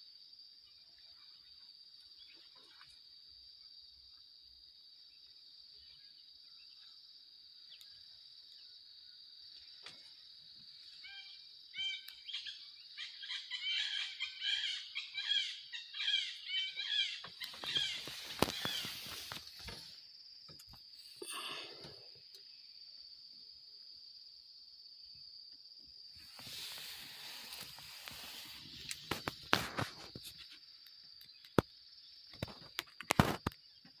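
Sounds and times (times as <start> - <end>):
high-pitched insect drone: 10.7 - 23.1, 25.0 - 30.6
birds chirping: 11.0 - 22.0.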